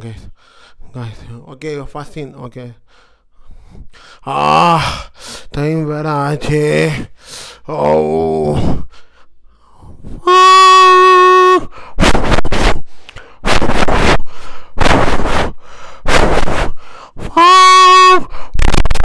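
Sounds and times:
man hooting like a train horn: 10.2 - 12.7, 17.2 - 19.0
man making chugging puffs: 11.5 - 17.6.

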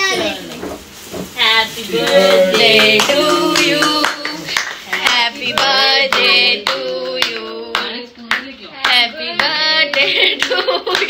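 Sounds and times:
voices singing along: 1.4 - 8.2, 8.8 - 10.4
group clapping in rhythm: 2.0 - 11.0.

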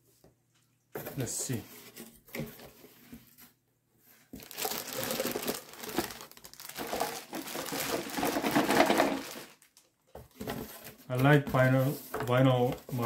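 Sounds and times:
plastic bag crinkling: 4.4 - 10.0.

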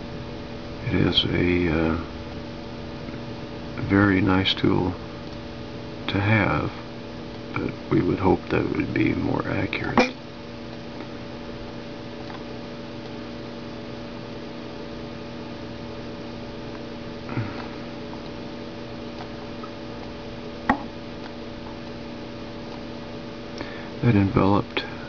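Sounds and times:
electrical hum: 0.0 - 25.0.

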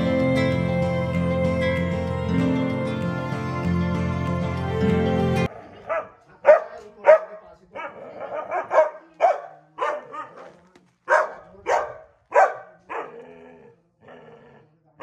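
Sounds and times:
dog barking: 5.5 - 13.5.

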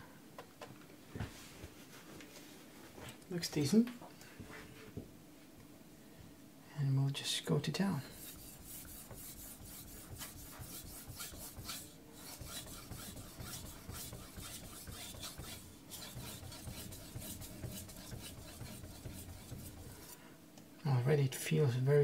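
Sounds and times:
knife scraping on wet whetstone: 8.1 - 20.2.

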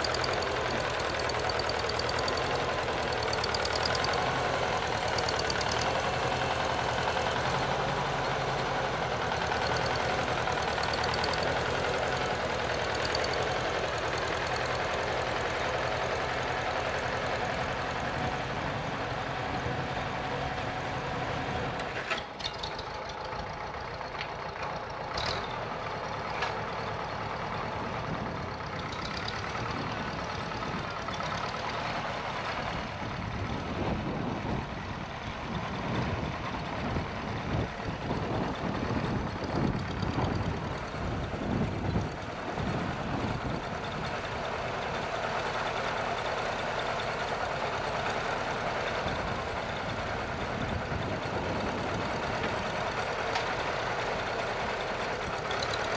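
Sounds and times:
tractor engine running under load: 0.0 - 55.9.

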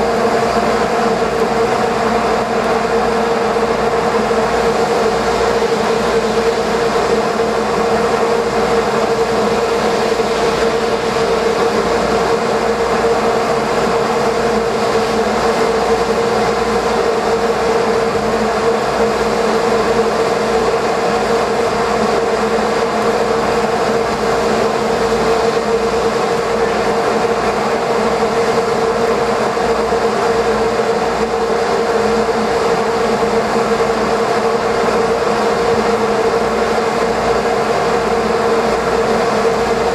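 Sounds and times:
boat engines droning: 0.0 - 39.9.

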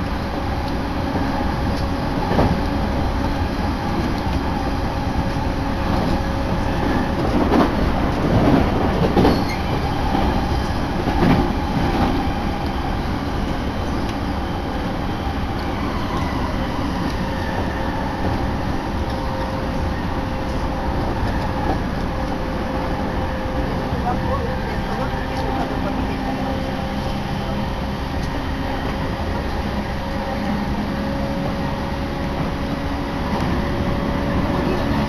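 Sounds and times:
train wheels rumbling on rails: 0.0 - 35.0
clacks over rail joints: 5.2 - 12.8.

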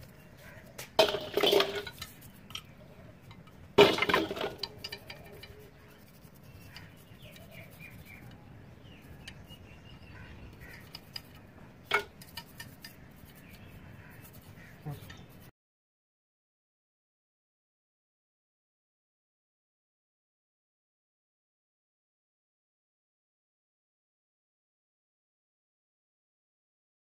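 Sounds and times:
metal parts clinking in steel bowl: 1.0 - 2.7, 4.0 - 5.6
toothbrush scrubbing: 4.7 - 8.2, 12.2 - 15.4.

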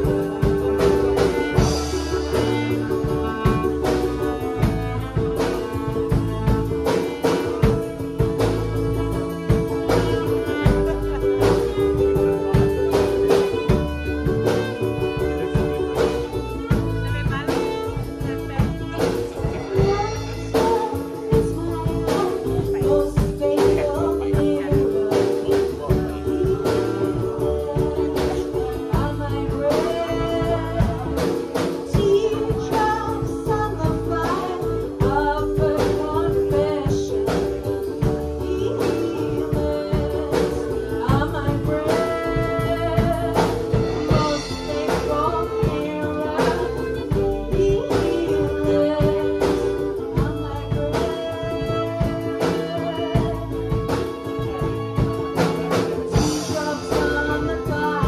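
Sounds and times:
steady beat: 0.0 - 36.8
upright double bass: 0.0 - 58.0
violin: 0.0 - 58.0
woman singing: 0.0 - 58.0.

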